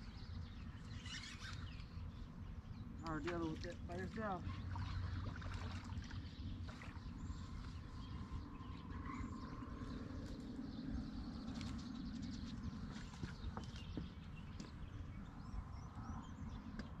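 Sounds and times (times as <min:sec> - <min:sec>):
faint bird chirps: 0:00.4 - 0:02.3
low steady rumble: 0:01.6 - 0:17.0.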